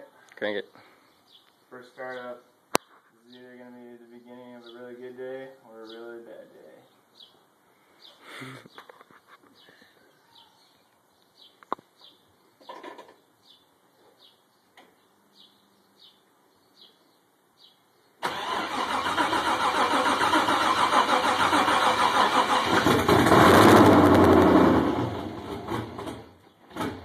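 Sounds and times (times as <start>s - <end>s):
faint high chirps: 9.6s - 12.3s
car engine starting and running: 18.2s - 27.0s.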